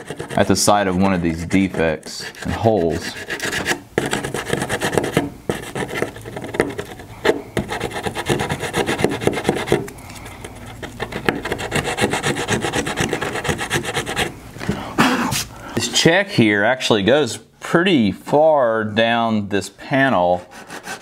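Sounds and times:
sandpaper scratching wood: 0.0s - 9.8s, 10.8s - 14.3s, 20.3s - 21.0s.

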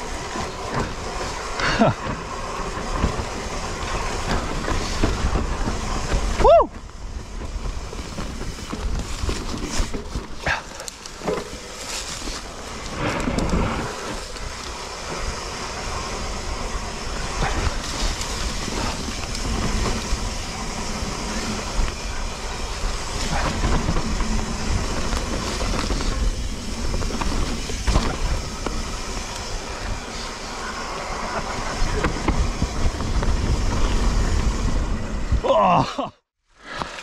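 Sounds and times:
bike clattering: 0.0s - 35.4s
tyres rumbling over dirt: 0.0s - 35.9s
wind buffeting microphone: 12.5s - 35.5s.

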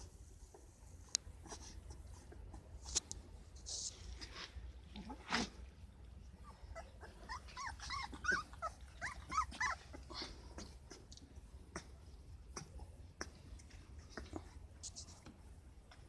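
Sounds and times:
puppies whimpering and squeaking: 6.2s - 11.2s.

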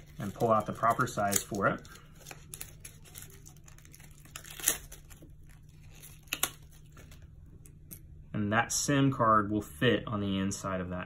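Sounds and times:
faint plastic crinkling: 0.0s - 8.0s
plastic card snapping: 6.0s - 7.1s.

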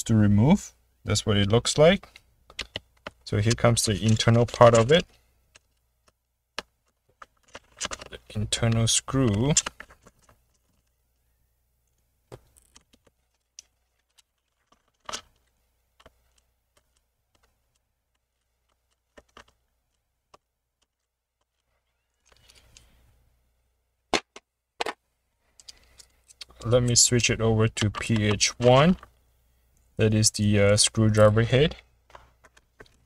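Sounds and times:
handling rustle: 2.1s - 11.0s, 11.9s - 23.0s
screwdriver clicking on laptop: 2.5s - 3.2s.

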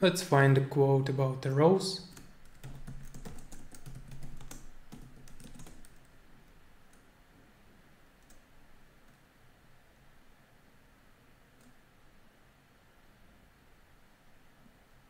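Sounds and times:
computer keyboard key clicks: 2.1s - 6.0s.

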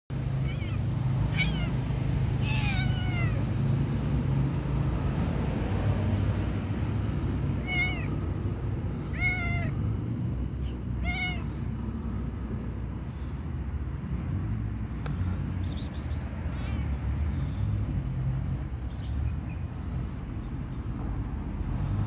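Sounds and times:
cat meowing: 0.3s - 3.5s, 7.6s - 8.2s, 9.1s - 9.8s, 11.0s - 11.6s, 16.5s - 17.0s.

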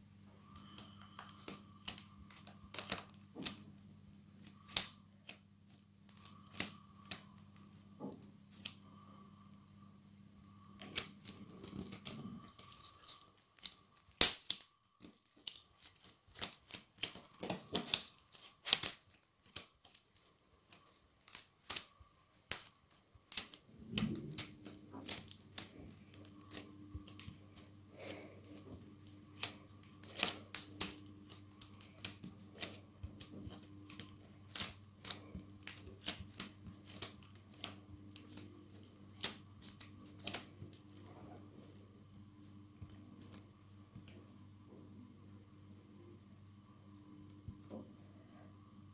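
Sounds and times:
slime clicking and popping: 14.1s - 14.7s.

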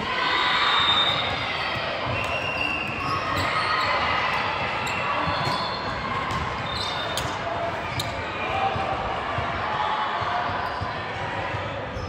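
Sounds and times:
shoe squeaks: 2.2s - 4.0s, 4.8s - 6.0s, 6.6s - 8.2s.

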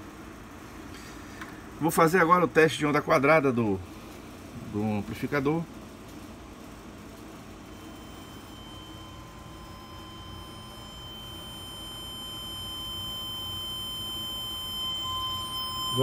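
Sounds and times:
high-pitched test tone: 7.7s - 16.0s.

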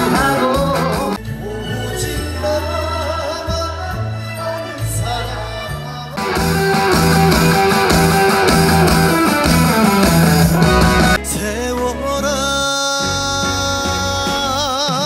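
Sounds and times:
live band music: 0.0s - 1.6s, 6.1s - 15.0s
man singing: 0.0s - 7.8s, 9.8s - 15.0s.

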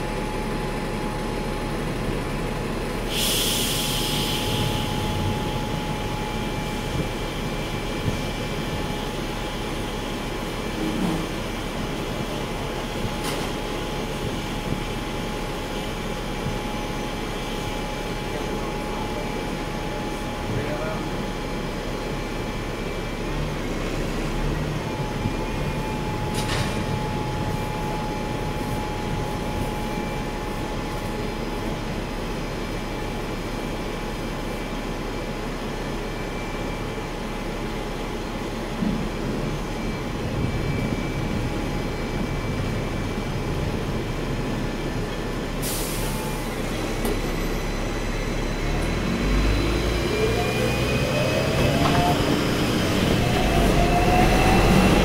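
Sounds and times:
bus idling: 0.0s - 55.0s
street traffic rumble: 0.0s - 55.0s
air hiss: 3.1s - 4.8s.

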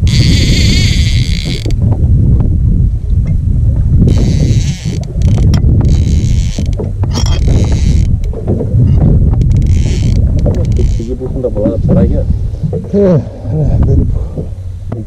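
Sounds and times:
fishing reel buzzing: 0.0s - 1.8s, 4.1s - 8.3s, 8.9s - 11.1s
wind rumble on microphone: 0.0s - 15.0s.

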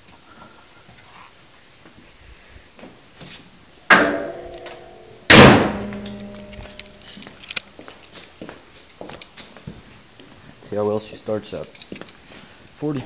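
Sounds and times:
light clicks and rattles: 5.9s - 9.6s, 11.5s - 12.2s.

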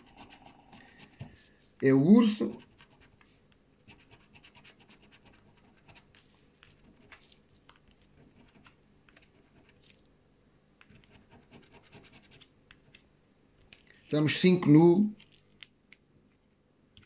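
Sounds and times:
scratching lottery ticket: 0.0s - 10.1s, 10.9s - 13.0s.

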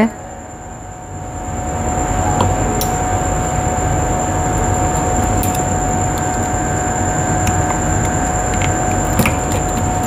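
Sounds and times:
mechanical whir with whine: 0.0s - 10.0s.

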